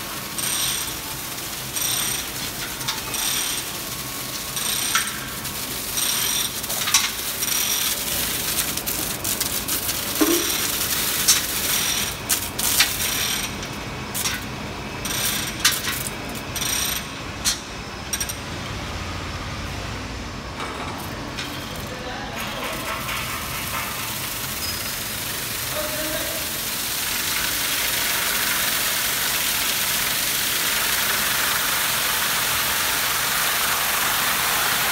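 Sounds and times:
electric mixer running: 0.0s - 13.5s
sharp clicks and rattles: 0.2s - 18.5s.

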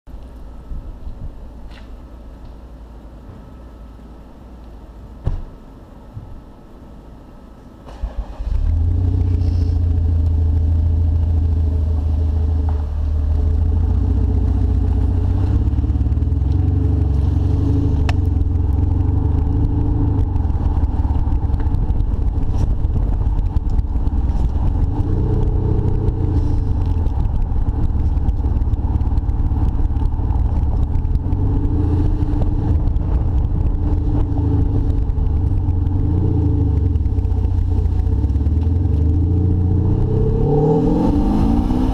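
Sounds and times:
deep car engine note: 8.5s - 41.9s.

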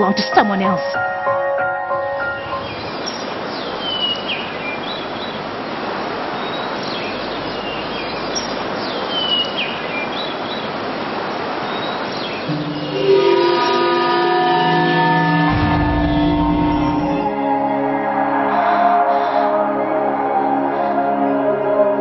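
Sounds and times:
sea surf rushing: 1.0s - 19.4s
birds chirping: 2.0s - 17.3s.

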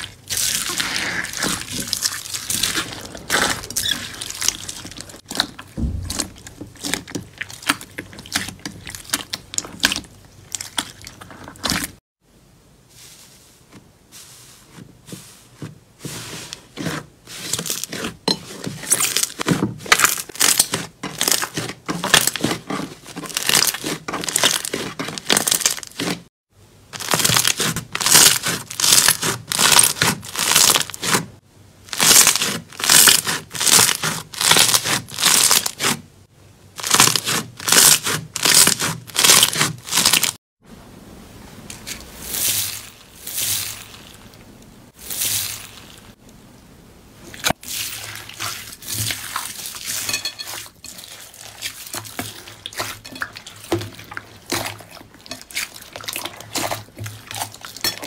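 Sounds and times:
slime crackling and popping: 23.2s - 26.0s, 27.0s - 31.1s, 31.9s - 35.9s, 36.8s - 40.4s.

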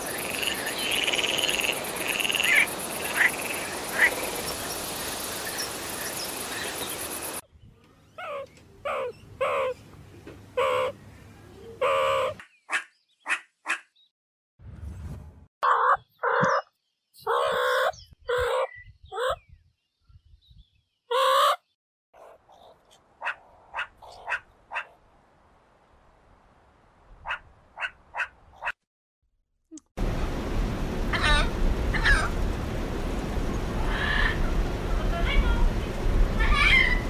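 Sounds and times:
meerkat calls: 11.8s - 12.4s, 15.6s - 19.4s.

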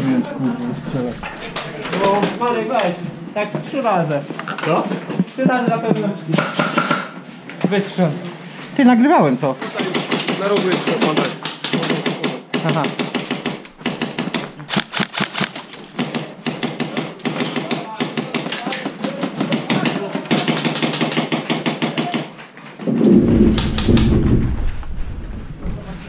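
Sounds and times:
airsoft guns firing: 6.4s - 7.2s, 9.8s - 22.3s
loud low rumble: 22.9s - 26.0s.

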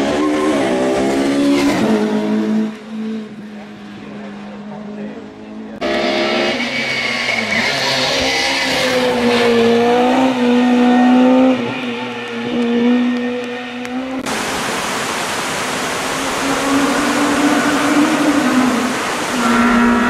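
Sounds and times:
racing car engine accelerating: 0.0s - 14.2s.

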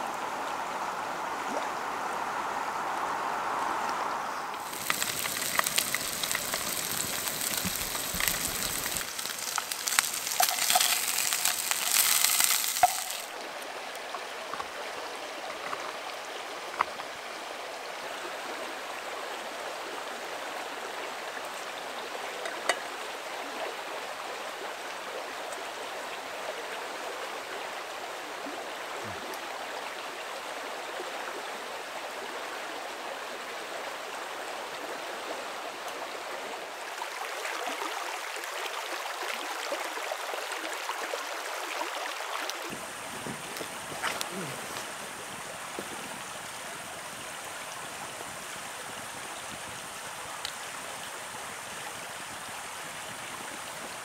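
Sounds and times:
river running over stones: 0.0s - 54.0s
fish sizzling in a frying pan: 4.6s - 13.3s.

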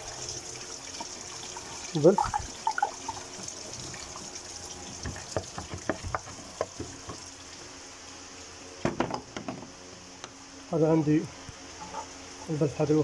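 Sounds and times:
coolant trickling and dripping: 0.0s - 9.4s.

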